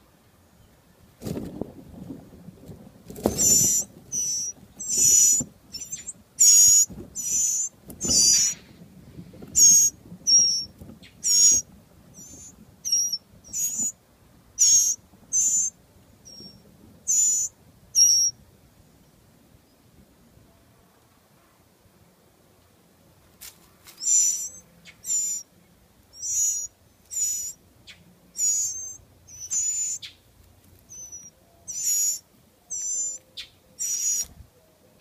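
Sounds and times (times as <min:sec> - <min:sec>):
nestlings begging calls: 0:03.3 - 0:08.7, 0:09.5 - 0:11.6, 0:12.2 - 0:14.0, 0:14.6 - 0:18.3, 0:24.0 - 0:25.5, 0:26.1 - 0:30.2, 0:30.9 - 0:34.3.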